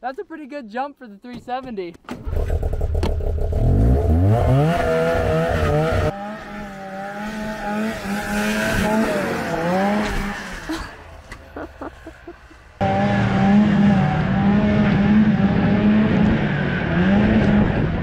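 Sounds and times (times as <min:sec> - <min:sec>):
snowmobile engine revving: 0:02.2 - 0:18.0.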